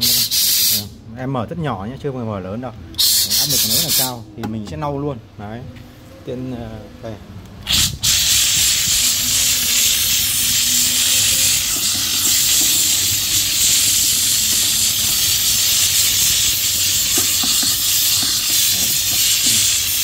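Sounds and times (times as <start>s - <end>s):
steam cleaner hissing: 0.0s - 0.9s, 3.0s - 4.2s, 7.6s - 20.0s.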